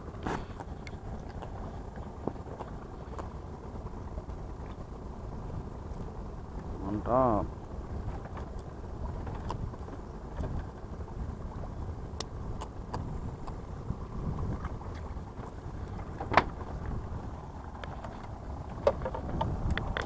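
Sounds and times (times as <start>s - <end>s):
wind rumble on microphone: 0.0s - 20.0s.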